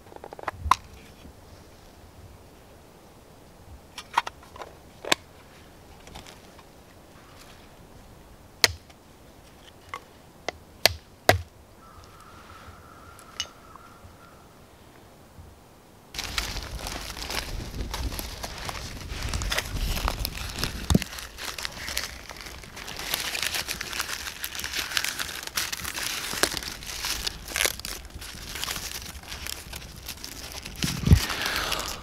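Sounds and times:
handling rustle: 4.0 - 7.9, 16.2 - 32.0.

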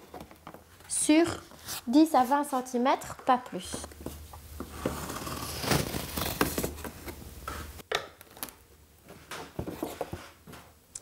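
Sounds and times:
cardboard rustling and scraping: 4.0 - 7.8, 9.4 - 10.6.

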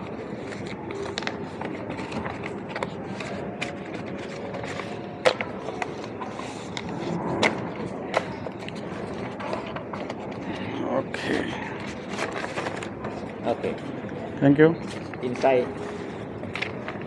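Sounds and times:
paper forms clicks and knocks: 0.0 - 10.7, 11.8 - 13.6, 14.9 - 17.0
large hall background noise: 0.0 - 17.0.

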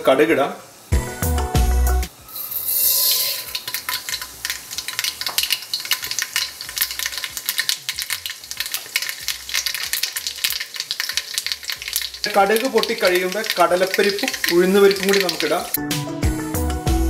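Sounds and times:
seeds sizzling in hot oil: 0.0 - 1.4, 2.1 - 15.8
seeds crackling and popping: 2.2 - 15.8.

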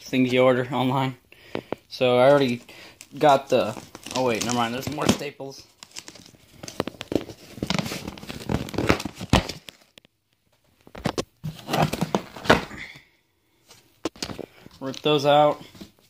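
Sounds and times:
cardboard box tearing open: 3.2 - 5.2.

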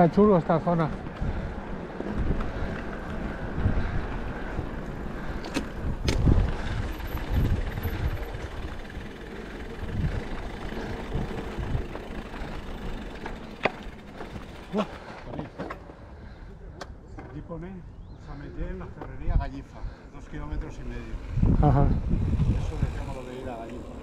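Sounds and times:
wind and tyres rumbling: 0.0 - 24.0.

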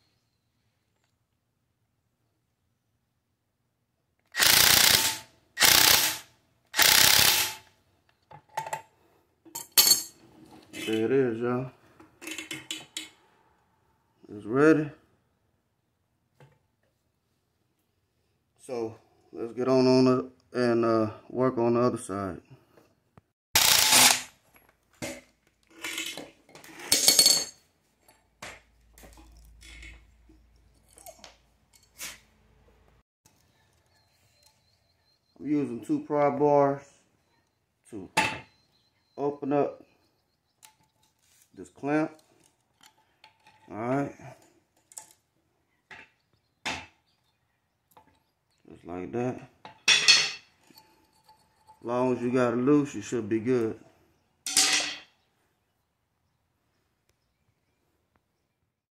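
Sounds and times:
ratchet wrench clicking: 4.4 - 6.2, 6.8 - 7.6
metal clinks and clatters: 49.8 - 51.9.

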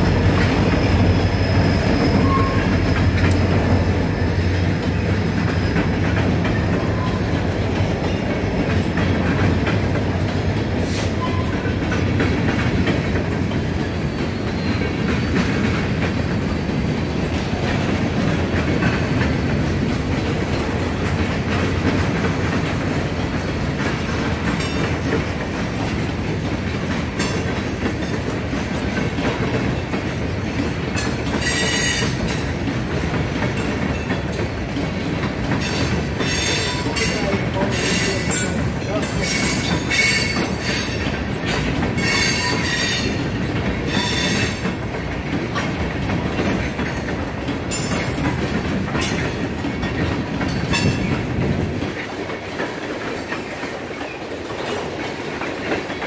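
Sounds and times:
train cars rumbling and clattering: 0.0 - 56.0
high-pitched wheel squeals: 0.8 - 2.9.

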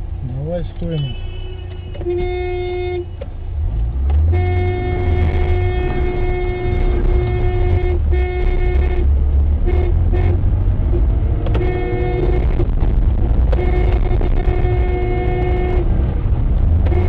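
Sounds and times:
car engine and tyres rumbling: 0.0 - 17.0
car horn honking: 0.8 - 3.3, 4.2 - 10.4, 11.5 - 12.7, 13.5 - 15.9, 16.8 - 17.0.

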